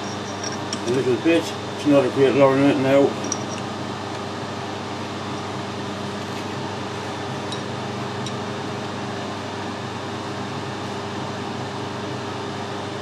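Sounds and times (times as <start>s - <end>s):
machine hum: 0.0s - 10.8s.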